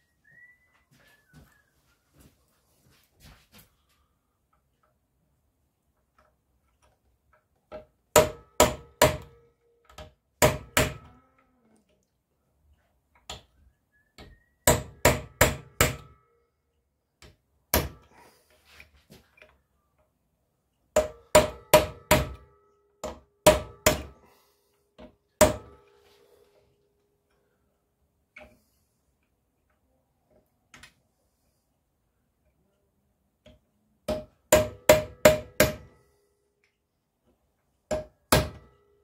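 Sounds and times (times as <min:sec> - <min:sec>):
hammer striking metal punch: 0:08.1 - 0:09.4, 0:10.4 - 0:11.1, 0:14.7 - 0:16.2, 0:17.7 - 0:18.1, 0:21.0 - 0:24.2, 0:25.4 - 0:25.8, 0:34.1 - 0:36.0, 0:37.9 - 0:38.8.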